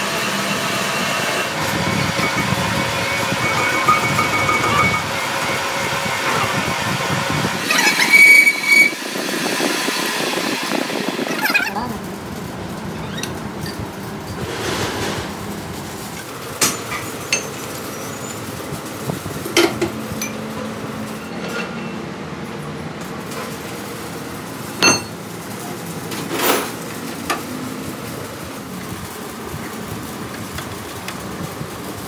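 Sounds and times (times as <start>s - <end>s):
steady background hum: 0.9s - 32.0s
metal tools clanking: 16.6s - 18.4s, 24.8s - 25.2s.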